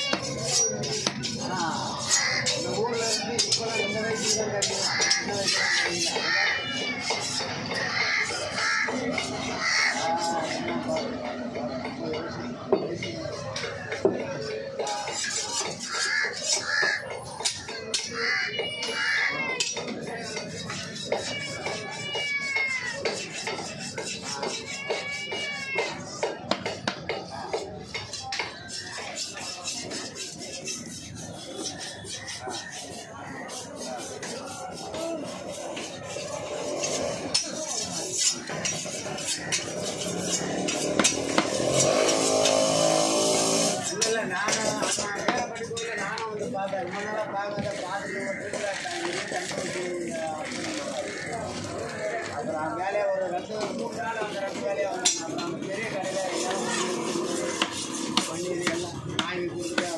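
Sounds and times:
market voices: 0.0 - 59.9
crows cawing: 4.8 - 6.5, 7.8 - 10.1, 15.8 - 17.2, 18.0 - 19.5.

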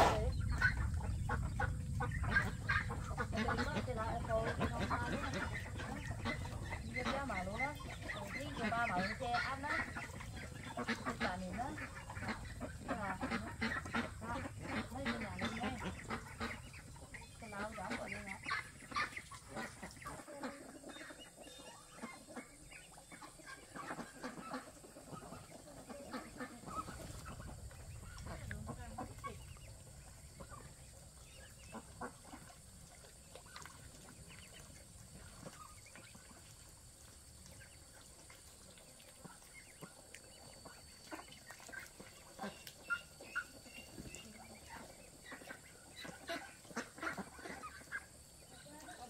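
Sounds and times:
low rumble: 0.0 - 8.8, 26.2 - 33.0
chickens clucking: 0.0 - 49.0.

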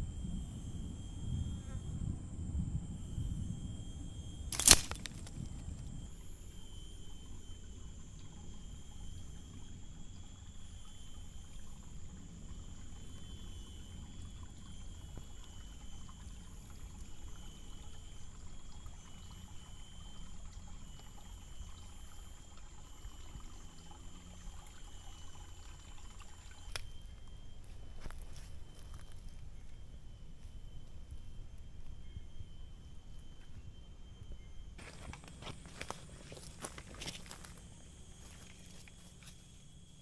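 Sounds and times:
high-pitched buzz: 0.0 - 40.0
water trickling: 4.5 - 33.4.

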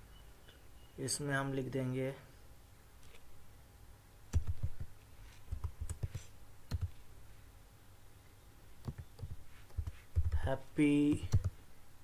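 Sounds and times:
keyboard typing clicks: 4.3 - 4.9, 5.5 - 6.9, 8.8 - 10.5, 11.1 - 11.6.

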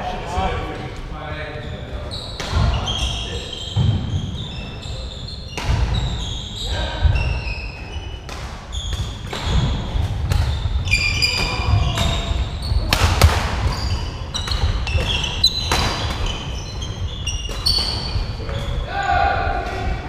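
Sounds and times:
shoes squeaking on wooden floor: 1.6 - 18.9
rackets hitting shuttlecock: 8.2 - 10.6, 11.2 - 16.5, 17.3 - 18.8.

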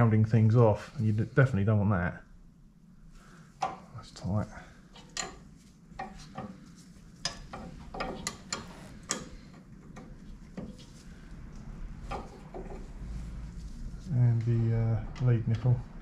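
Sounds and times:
spanner clicking on metal bolts: 7.2 - 10.7.

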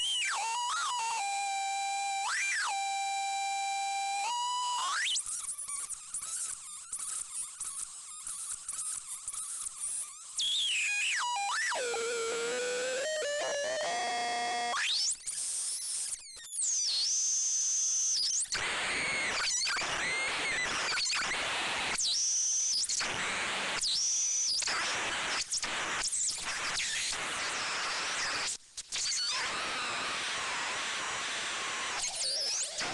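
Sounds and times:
buzzy synthesizer tone: 11.3 - 14.8.

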